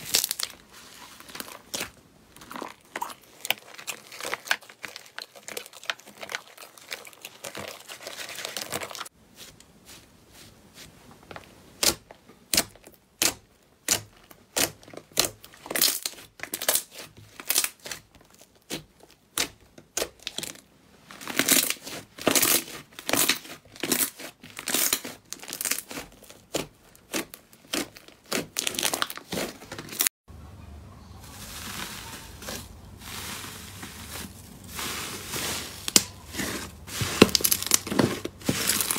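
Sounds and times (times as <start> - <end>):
foil crinkling: 0.0 - 9.1, 31.2 - 38.9
slime squelching and popping: 0.0 - 9.1, 21.2 - 30.0, 34.8 - 38.9.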